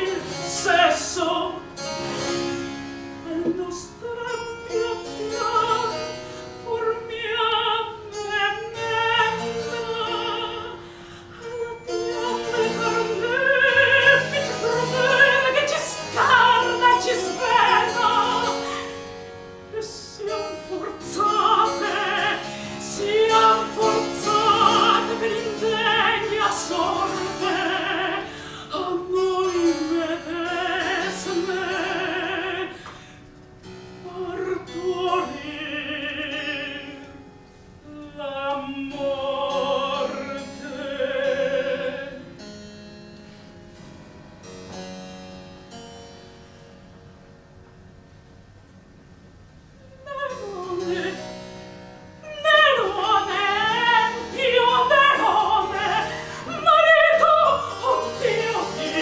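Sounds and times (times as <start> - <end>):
woman singing opera: 0.0 - 1.8, 3.2 - 19.0, 19.7 - 33.1, 34.0 - 37.2, 37.8 - 42.3, 49.8 - 51.3, 52.2 - 59.0.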